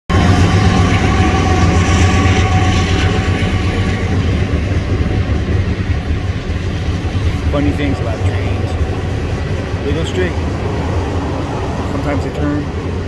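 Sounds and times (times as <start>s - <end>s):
humming tones: 0.1s - 12.0s
freight train rumbling: 0.1s - 13.0s.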